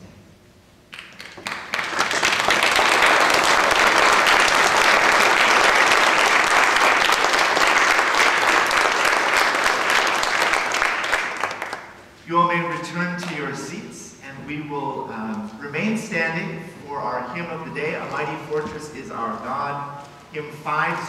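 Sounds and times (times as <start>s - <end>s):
congregation applauding: 0.9s - 12.1s.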